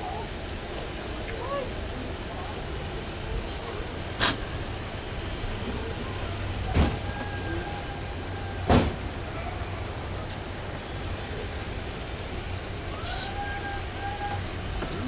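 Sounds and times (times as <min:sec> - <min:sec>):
road vehicle droning: 0:02.7 - 0:15.0.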